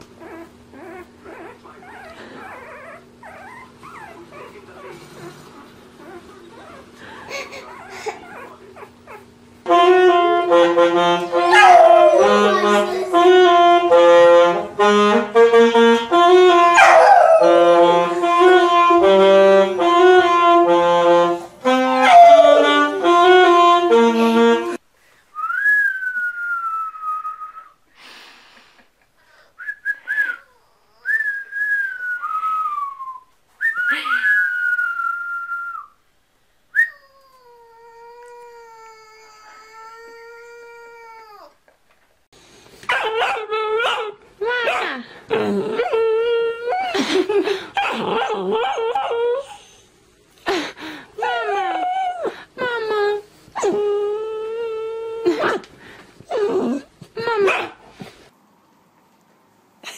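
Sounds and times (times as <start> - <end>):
saxophone melody: 9.6 - 24.8
dog howling: 11.4 - 13.2, 16.8 - 17.8, 22.0 - 23.0, 51.2 - 52.3.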